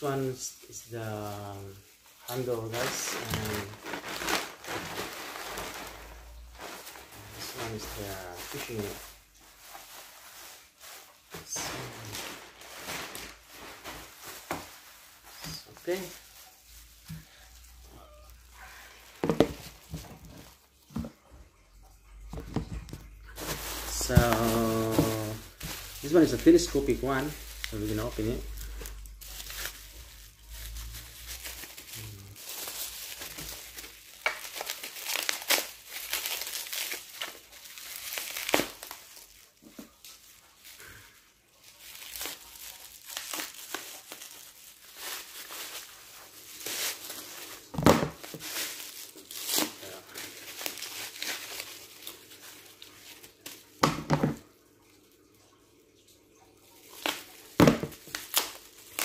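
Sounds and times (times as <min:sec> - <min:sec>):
bubble wrap crackles: 0:00.0 - 0:21.3, 0:22.1 - 0:54.5, 0:56.6 - 0:59.0
bubble wrap rustling and crinkling: 0:00.0 - 0:55.2, 0:56.3 - 0:59.0.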